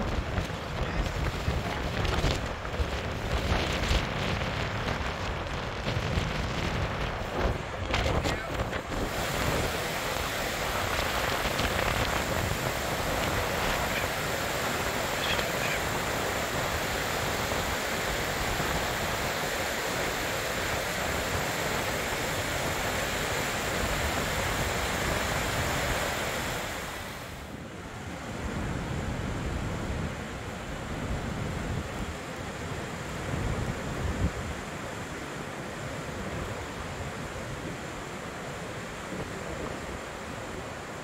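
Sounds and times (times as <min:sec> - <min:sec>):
waterfall rushing: 0:06.9 - 0:27.5.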